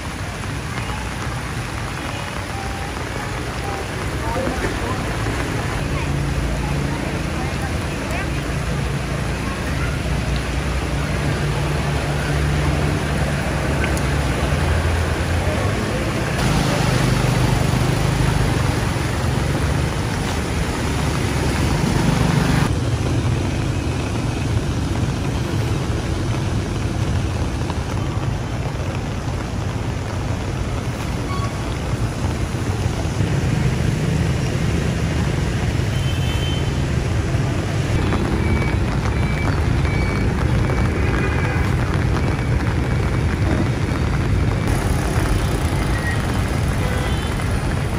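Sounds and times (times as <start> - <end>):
vehicle engines running: 0.0 - 36.0, 36.7 - 47.9
traffic noise: 0.0 - 47.9
water splashing around wheels: 0.0 - 47.9.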